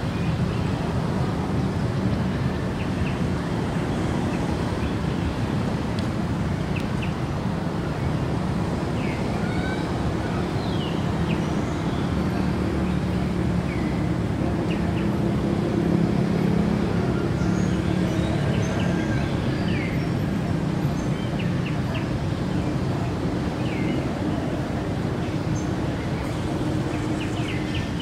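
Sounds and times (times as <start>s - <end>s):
small birds chirping: 20.9s - 28.0s.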